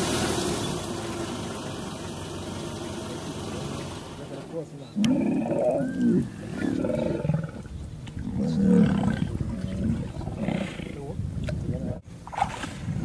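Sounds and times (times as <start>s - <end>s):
young lions growling: 4.9s - 12.0s.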